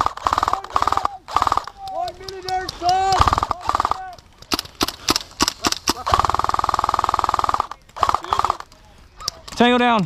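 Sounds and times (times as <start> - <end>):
airsoft rifle firing: 2.9 - 8.7.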